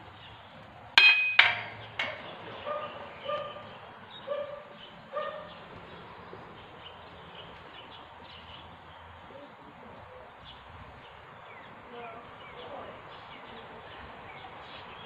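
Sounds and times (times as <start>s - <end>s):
dog barking: 2.6s - 5.6s.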